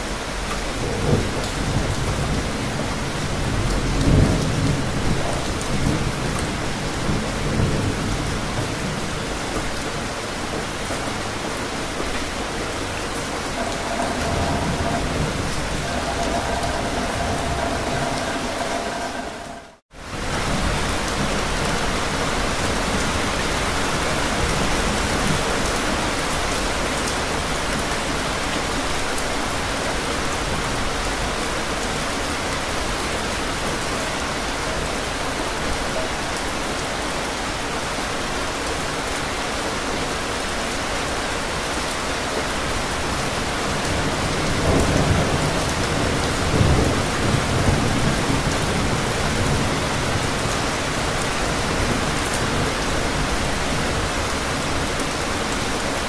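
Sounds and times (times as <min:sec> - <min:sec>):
heavy rain falling: 0:00.0 - 0:56.0
rolling thunder: 0:13.4 - 0:20.6.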